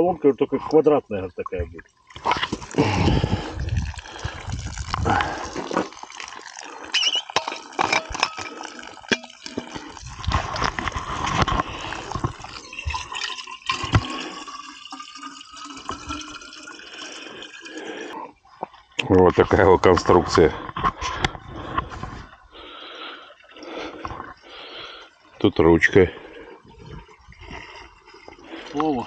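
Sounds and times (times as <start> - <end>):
water splashing from pump: 2.0 - 17.0, 27.0 - 29.0
rising tone of container filling: 8.4 - 18.2.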